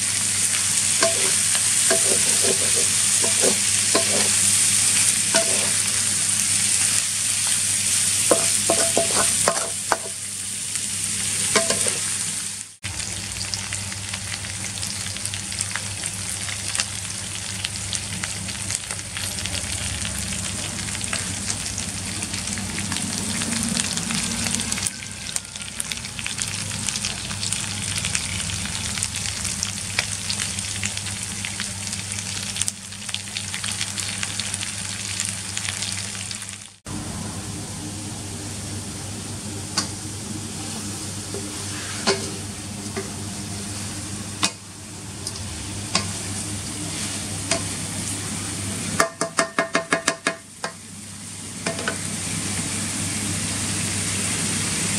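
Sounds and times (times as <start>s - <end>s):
fish frying in hot oil: 0.0s - 36.8s, 43.5s - 54.9s
wooden spatula scraping a wok: 1.0s - 4.7s, 8.3s - 10.2s, 40.6s - 42.4s.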